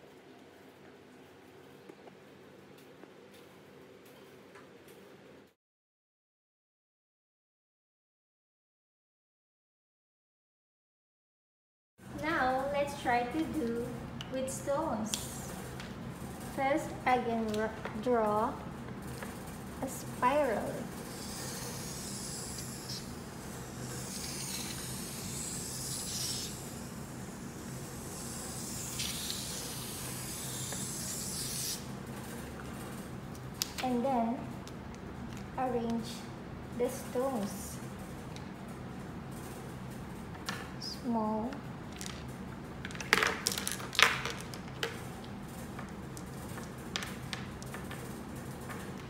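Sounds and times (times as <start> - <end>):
marker scratching on paper: 23.8 - 26.6, 28.5 - 31.8.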